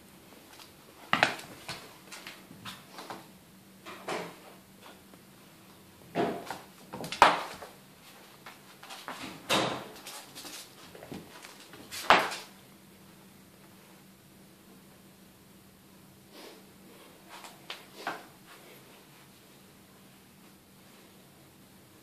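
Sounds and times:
kitten scuffling on floor: 0:09.9 - 0:12.5.

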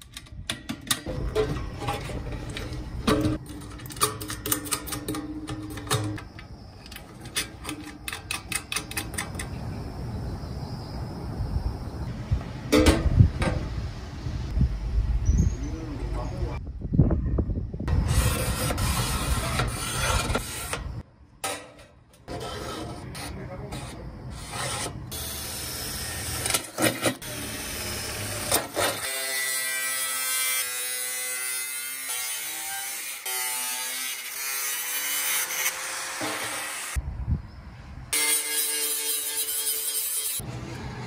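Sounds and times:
marker pen scraping on metal: 0:18.1 - 0:20.9, 0:22.3 - 0:25.0.

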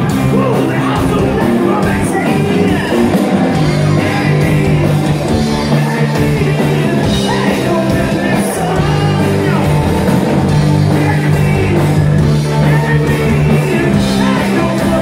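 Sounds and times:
live rock band playing: 0:00.0 - 0:15.0
man singing: 0:00.0 - 0:15.0.

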